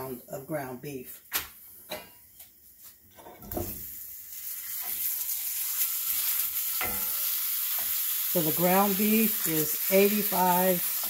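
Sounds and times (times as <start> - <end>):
meat sizzling in a skillet: 3.6 - 11.0.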